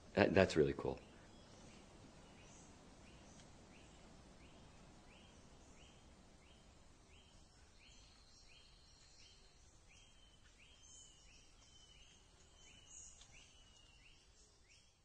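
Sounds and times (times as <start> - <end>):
low hiss: 0.0 - 15.0.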